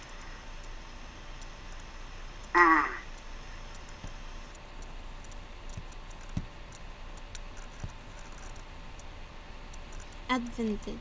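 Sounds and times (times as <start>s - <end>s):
soft clicks: 0.1s - 2.5s, 3.1s - 9.1s, 9.7s - 10.3s
person crying out: 2.6s - 3.1s.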